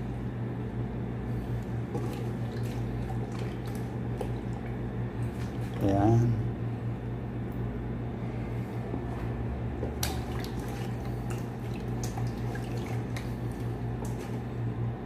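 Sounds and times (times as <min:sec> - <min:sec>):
steady low hum: 0:00.0 - 0:15.0
wet squelching of chicken: 0:01.3 - 0:05.8, 0:09.1 - 0:14.5.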